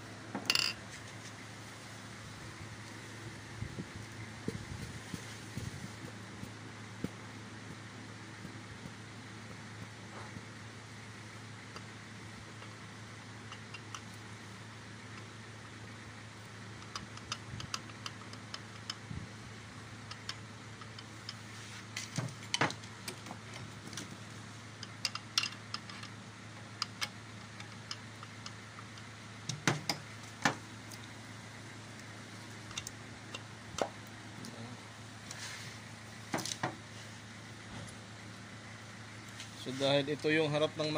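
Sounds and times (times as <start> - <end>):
steady low hum: 0.0 - 40.9
metallic clicks and knocks: 24.8 - 26.2.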